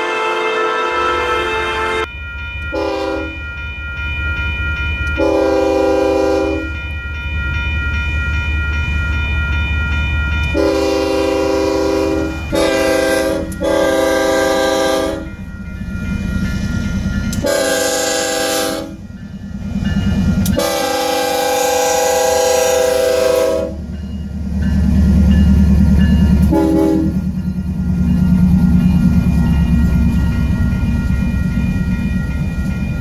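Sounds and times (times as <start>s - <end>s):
locomotive air horn: 0.0s - 2.1s, 2.7s - 3.4s, 5.2s - 6.7s, 10.6s - 15.3s, 17.4s - 19.0s, 20.6s - 23.8s, 26.5s - 27.2s
background music: 0.0s - 20.8s
crossing bell ringing: 0.0s - 33.0s.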